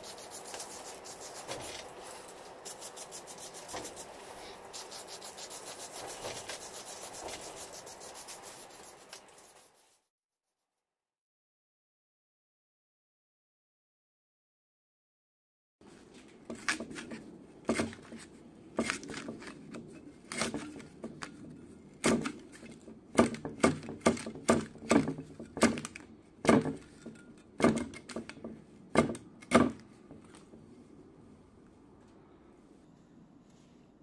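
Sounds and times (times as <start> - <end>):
shear snipping paper disc: 16.5 - 21.0.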